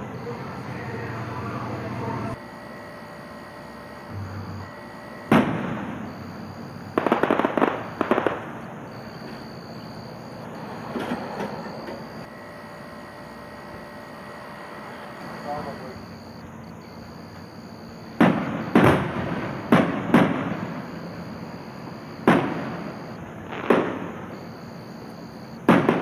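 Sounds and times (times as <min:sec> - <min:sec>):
sharp firework pops: 0:05.3 - 0:06.2, 0:06.9 - 0:09.4, 0:18.1 - 0:21.0, 0:22.2 - 0:24.5, 0:25.6 - 0:26.0
firework shell bursts: 0:06.9 - 0:08.6.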